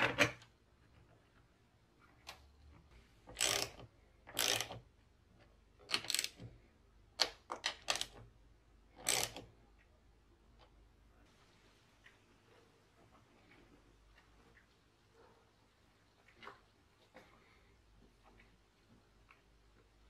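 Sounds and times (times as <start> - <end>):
ratchet wrench clicking: 3.4 - 4.8, 5.9 - 6.4, 9.0 - 9.4.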